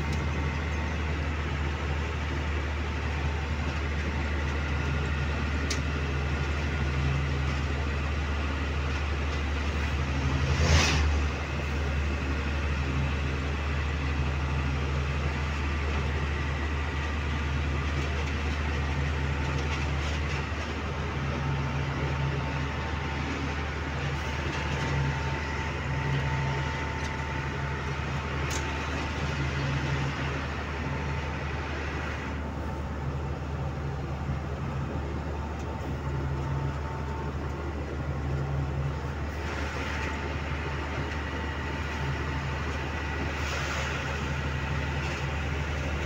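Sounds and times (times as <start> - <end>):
truck engine running: 0.0 - 46.0
tyres on the road: 0.0 - 46.0.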